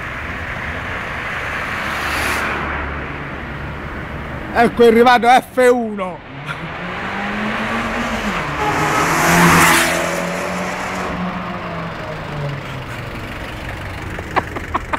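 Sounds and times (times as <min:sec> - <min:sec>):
car driving past: 0:06.3 - 0:14.2.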